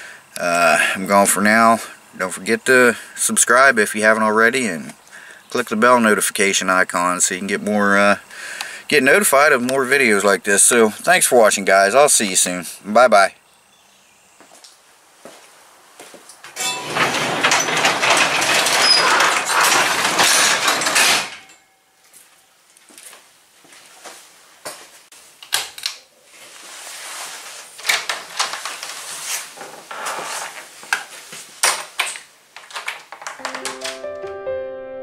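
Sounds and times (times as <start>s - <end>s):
garage door rolling down: 16.5s - 21.6s
rattling: 16.6s - 21.7s
knocks and clicks: 33.2s - 34.4s.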